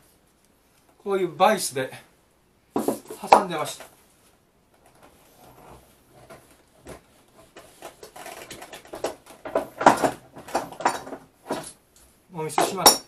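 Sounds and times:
wooden knocks and rattles: 2.8 - 3.5, 4.8 - 11.8, 12.5 - 13.0.

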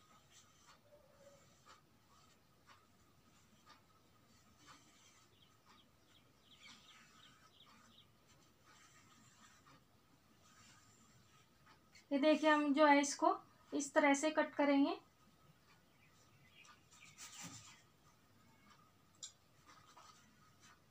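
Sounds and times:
pencil scratching: 0.0 - 12.8, 16.9 - 17.9.

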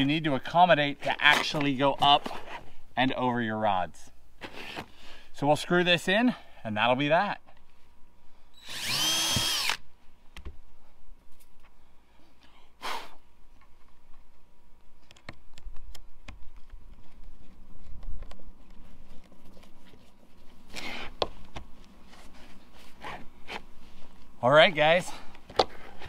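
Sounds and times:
cordless drill motor whine: 8.5 - 9.8.

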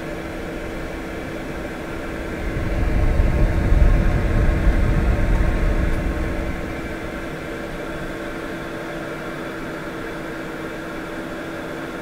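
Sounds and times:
blower fan humming: 0.0 - 12.0
air rushing onto microphone: 1.8 - 8.5.

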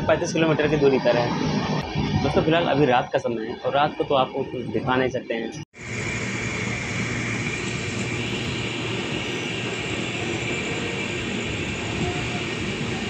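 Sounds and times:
rushing air: 0.9 - 2.7, 5.8 - 13.0.

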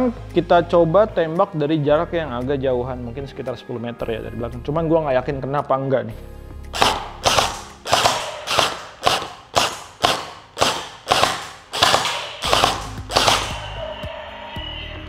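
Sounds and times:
gel blaster firing shots: 6.8 - 13.7.

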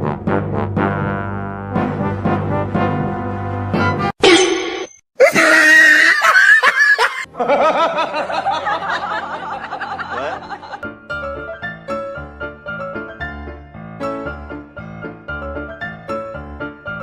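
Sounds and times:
person laughing hard: 5.2 - 10.8.

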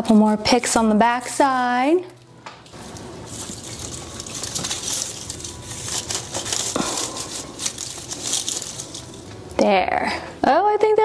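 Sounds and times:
artificial tree branches rustling: 2.6 - 9.6.

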